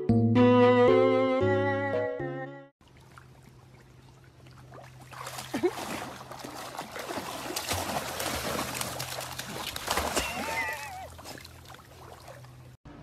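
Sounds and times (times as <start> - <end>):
dog splashing in water: 2.8 - 12.7.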